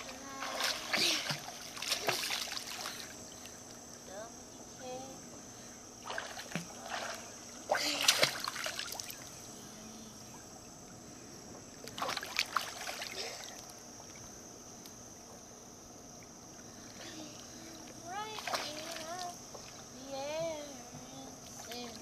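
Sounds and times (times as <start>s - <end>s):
pool water splashing: 0.0s - 3.8s, 6.0s - 10.3s, 11.7s - 14.4s, 16.8s - 22.0s
water lapping: 0.0s - 4.3s, 5.5s - 10.4s, 11.5s - 14.2s, 16.6s - 22.0s.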